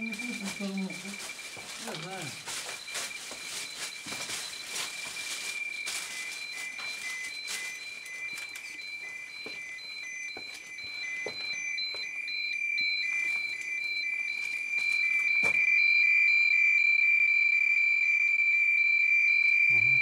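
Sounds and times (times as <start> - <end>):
fast pulsing beep: 0.0 - 12.6
high-pitched alarm tone: 0.0 - 20.0.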